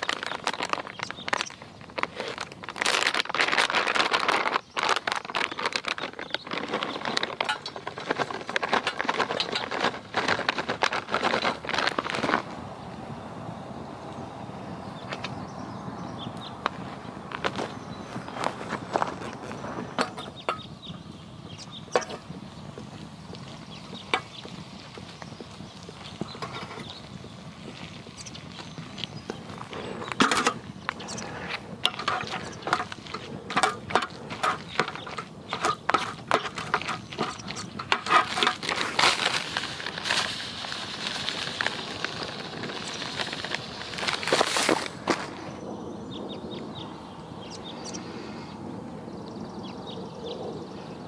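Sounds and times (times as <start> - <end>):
plastic pouch crinkling: 0.0 - 12.6, 21.9 - 45.4.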